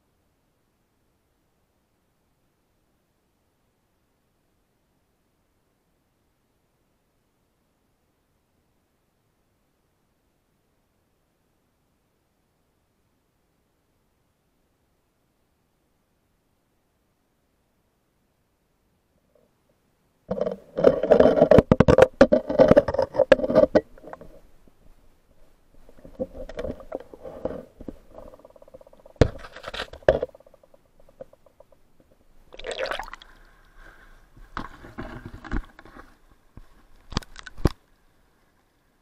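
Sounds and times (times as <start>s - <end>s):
water sloshing around camera: 25.4s - 34.0s, 34.6s - 38.6s.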